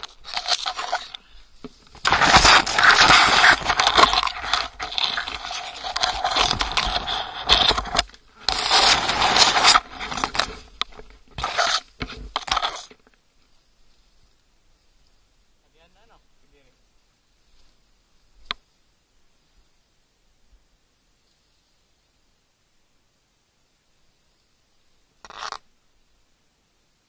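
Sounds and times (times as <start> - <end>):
scraping and crackling: 0.0 - 13.2, 25.2 - 25.6.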